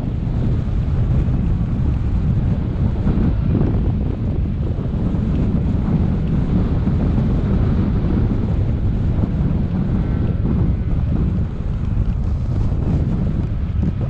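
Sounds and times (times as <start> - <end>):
wind noise on microphone: 0.0 - 14.0.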